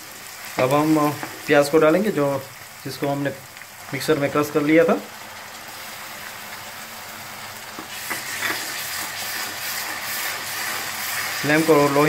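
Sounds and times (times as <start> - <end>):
onion paste sizzling in oil: 0.0 - 12.0
wooden spoon scraping pan: 7.8 - 11.3.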